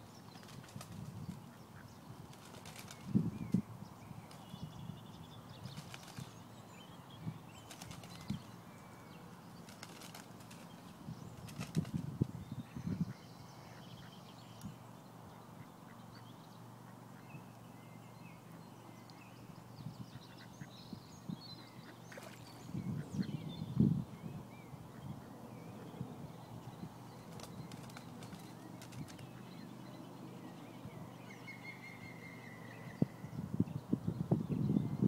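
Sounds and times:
wind rumble on microphone: 0.2 - 6.4, 10.4 - 13.5, 22.2 - 29.4, 32.7 - 35.0.

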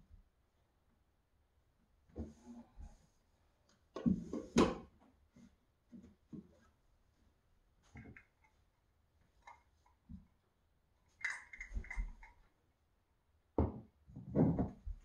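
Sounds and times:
small clatter: 11.1 - 12.5.

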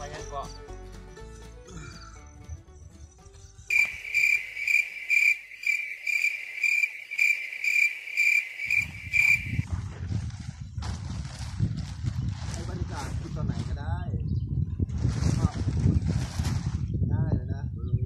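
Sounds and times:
cricket chirping: 3.7 - 9.7.

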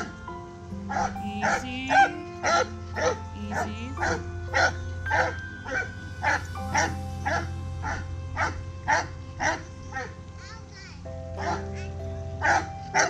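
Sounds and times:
background music: 0.0 - 13.0
dog barking: 0.9 - 5.4, 11.4 - 11.8, 12.4 - 13.0.

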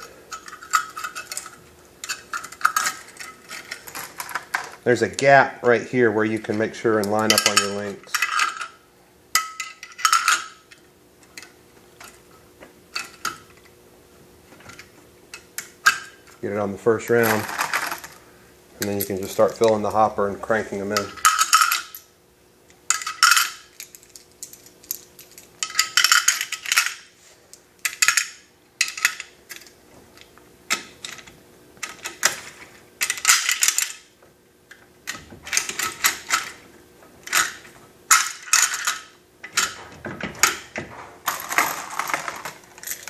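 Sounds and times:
cartridges clinking into metal hopper: 6.3 - 8.8, 9.4 - 10.6, 17.1 - 18.2, 20.9 - 22.0, 22.9 - 27.0, 31.9 - 34.1, 37.3 - 43.0.

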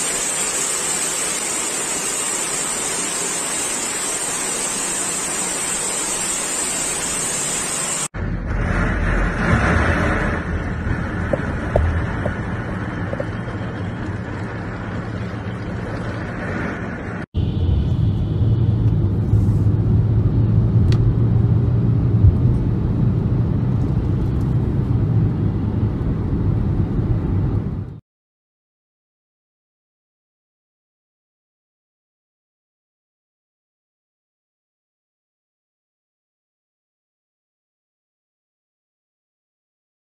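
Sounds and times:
heavy rain: 0.0 - 17.3
storm wind: 0.0 - 28.0
vehicle driving low rumble: 8.2 - 28.0.

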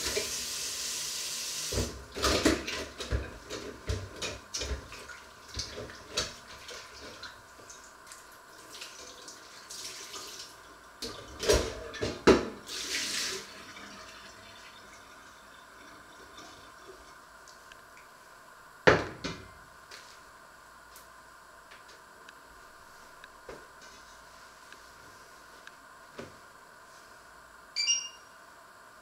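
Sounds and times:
tap water running: 0.0 - 17.6.

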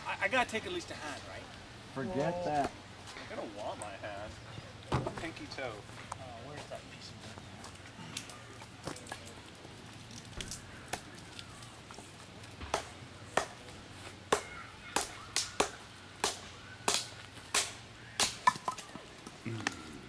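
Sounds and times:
axe chopping firewood: 12.6 - 13.7, 14.3 - 18.9.

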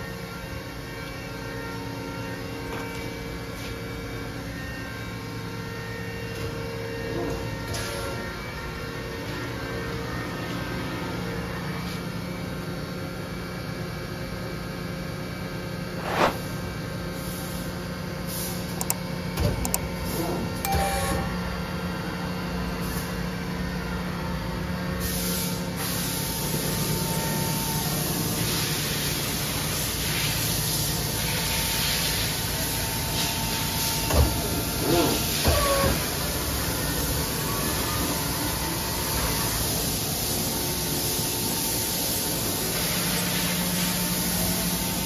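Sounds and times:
machine hum with tones: 0.0 - 45.0
hiss: 25.0 - 27.0, 39.2 - 45.0.

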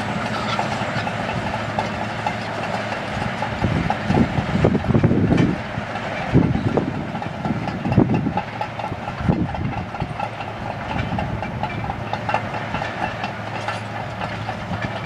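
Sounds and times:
bulldozer diesel engine running: 0.0 - 15.0
steel tracks clanking: 0.0 - 15.0.

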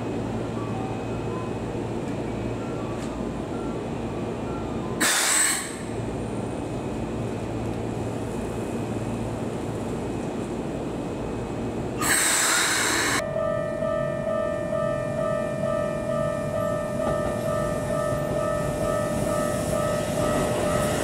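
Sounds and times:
electric trains humming: 0.0 - 21.0
compressed air hiss: 5.0 - 5.8, 12.0 - 13.2.

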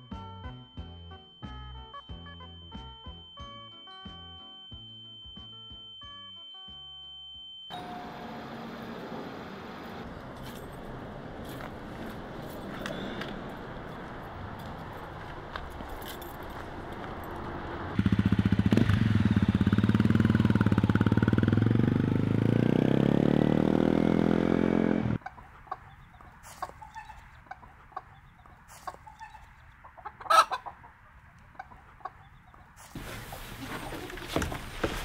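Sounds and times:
dirt bike engine revving: 17.6 - 25.2
chickens clucking: 25.2 - 34.5.

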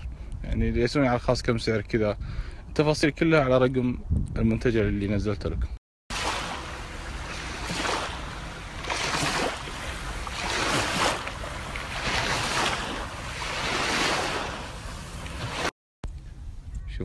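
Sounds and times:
small waves lapping on sand: 6.1 - 15.7.

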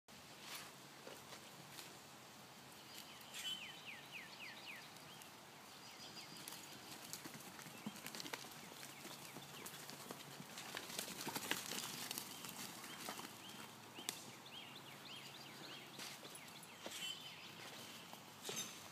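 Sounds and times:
bird chirping: 2.7 - 7.0, 12.2 - 18.8
hooves clopping on dirt: 4.4 - 18.9.

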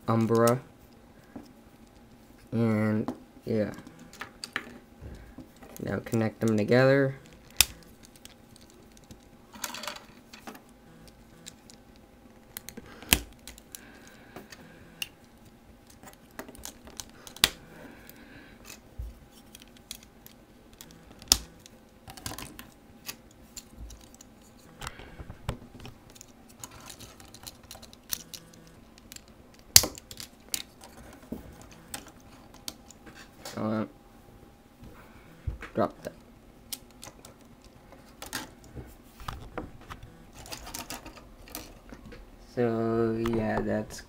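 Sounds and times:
plastic parts clicking together: 7.2 - 15.1, 19.4 - 33.0.

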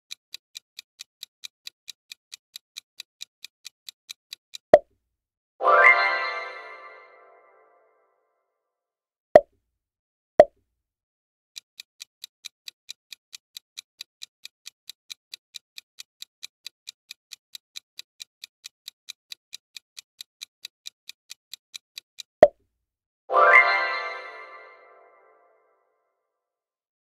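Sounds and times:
clock-like ticking: 0.0 - 4.8, 11.6 - 22.3.

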